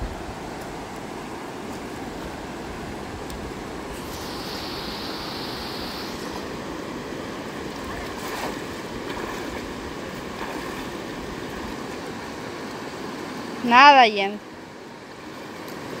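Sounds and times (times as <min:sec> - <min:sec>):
river rushing over rapids: 0:00.0 - 0:16.0
legs wading through water: 0:03.9 - 0:12.6.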